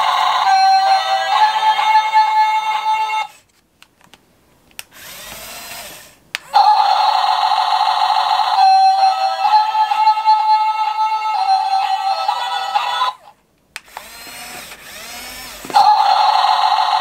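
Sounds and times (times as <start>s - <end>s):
toy motor whirring: 4.9s - 9.9s, 13.8s - 17.0s.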